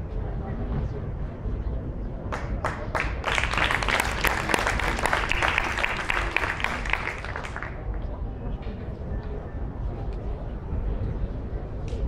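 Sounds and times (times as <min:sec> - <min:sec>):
audience applauding: 0:02.4 - 0:08.0.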